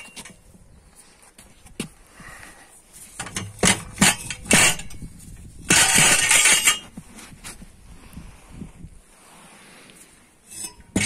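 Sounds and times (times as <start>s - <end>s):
metal pipes knocking on wooden boards: 3.2s - 5.0s, 10.6s - 11.0s
metal rattling clatter: 3.2s - 6.9s.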